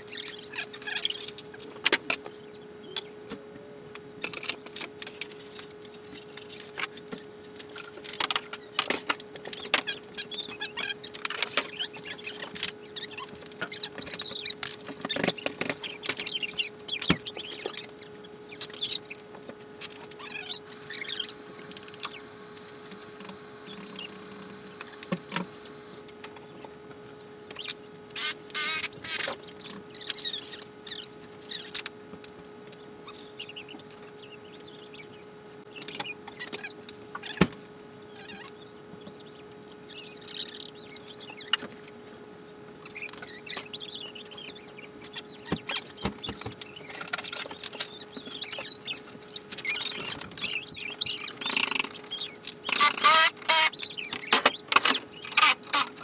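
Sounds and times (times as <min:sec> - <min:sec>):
steady hum: 0:00.0 - 0:56.0.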